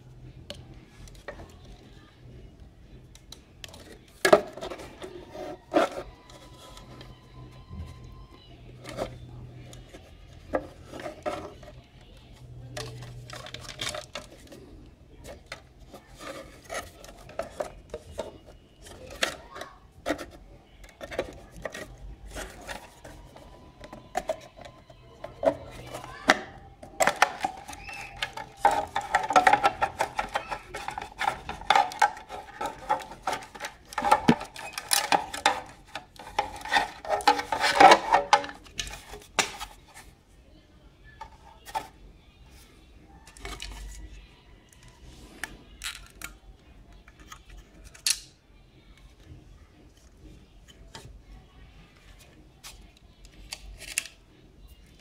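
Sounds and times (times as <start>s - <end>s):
hard plastic clicking and rubbing: 3.0s - 40.1s, 41.2s - 42.0s.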